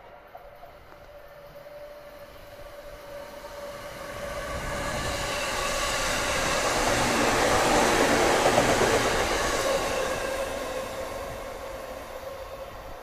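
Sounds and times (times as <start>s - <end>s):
electric train passing: 0.0s - 13.0s
wheel and track rumble: 4.1s - 9.8s.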